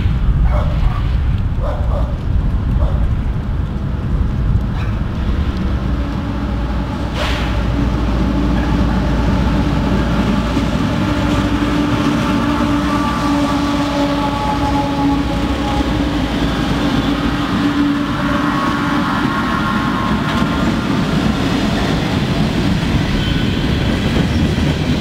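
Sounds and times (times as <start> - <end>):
diesel locomotives rumbling: 0.0 - 25.0
dog barking: 0.4 - 2.2, 2.8 - 3.0.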